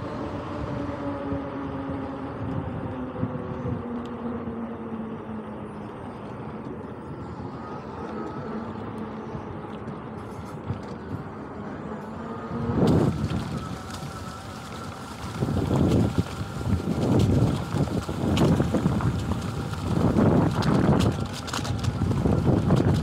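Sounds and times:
wind noise: 0:00.0 - 0:05.2, 0:06.9 - 0:23.0
electric motor whining: 0:06.8 - 0:09.7, 0:11.2 - 0:23.0.

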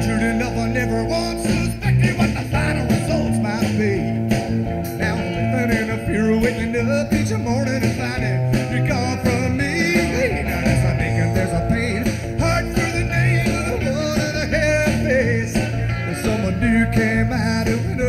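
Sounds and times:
live country-rock band playing: 0:00.0 - 0:18.0
wavering lead guitar: 0:00.0 - 0:18.0.

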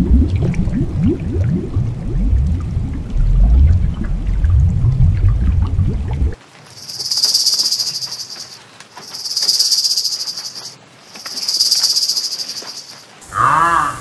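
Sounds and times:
high-pitched insect trill: 0:06.7 - 0:13.1.

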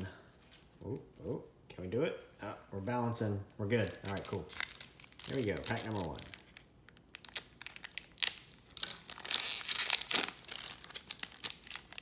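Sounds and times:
foil wrapper tearing and crinkling: 0:03.9 - 0:12.0.

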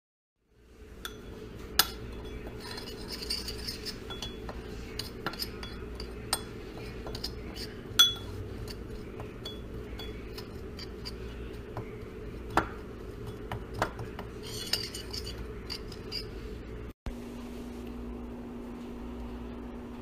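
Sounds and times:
metal spoon scraping ceramic bowl: 0:01.0 - 0:16.5.

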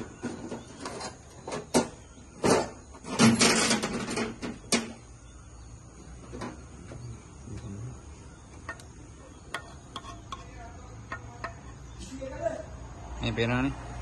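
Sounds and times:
dense clatter: 0:00.2 - 0:05.0.

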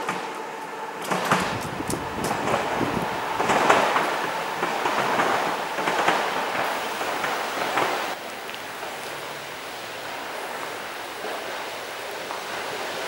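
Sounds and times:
train wheels clacking over joints: 0:00.0 - 0:08.2
open-air background: 0:00.0 - 0:13.0
train rolling past: 0:00.0 - 0:13.0.

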